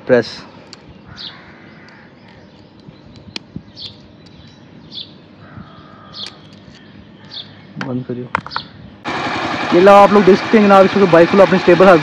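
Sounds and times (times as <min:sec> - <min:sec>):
bird chirping: 0:00.5 - 0:09.0.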